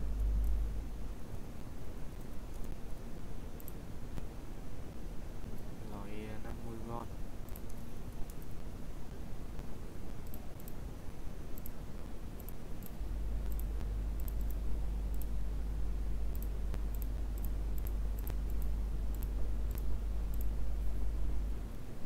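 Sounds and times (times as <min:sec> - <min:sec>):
steady low hum: 0:00.0 - 0:22.0
computer mouse clicking: 0:02.2 - 0:02.8, 0:03.6 - 0:04.3, 0:07.5 - 0:08.6, 0:10.2 - 0:10.8, 0:11.6 - 0:11.8, 0:12.4 - 0:15.4, 0:16.3 - 0:20.6.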